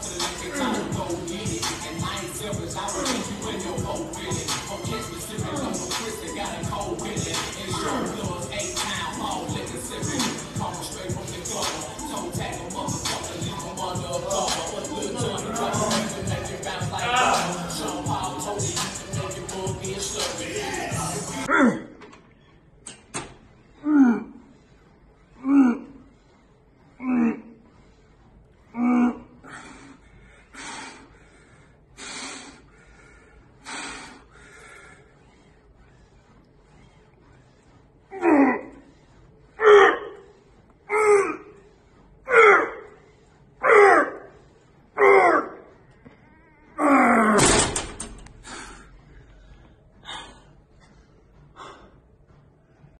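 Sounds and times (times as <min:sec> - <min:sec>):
man grunting: 0:00.0 - 0:03.6, 0:07.6 - 0:09.0, 0:14.2 - 0:18.0, 0:20.5 - 0:22.0, 0:42.3 - 0:42.9, 0:45.0 - 0:45.7, 0:46.5 - 0:47.5
man grunting with effort: 0:00.2 - 0:01.3, 0:07.7 - 0:08.2, 0:15.0 - 0:17.8, 0:46.6 - 0:47.6
metallic clatter of machine: 0:47.4 - 0:48.4.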